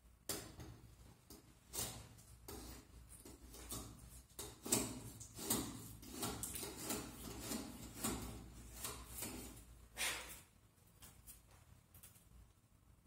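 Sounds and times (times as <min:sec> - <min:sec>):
router plane scraping wood: 0:04.5 - 0:10.2.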